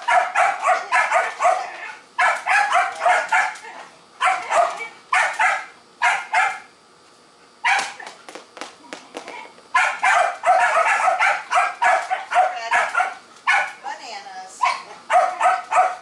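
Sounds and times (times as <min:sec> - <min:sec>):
dog barking: 0:00.0 - 0:03.6, 0:04.2 - 0:06.7, 0:07.6 - 0:08.0, 0:09.8 - 0:13.8, 0:14.6 - 0:16.0.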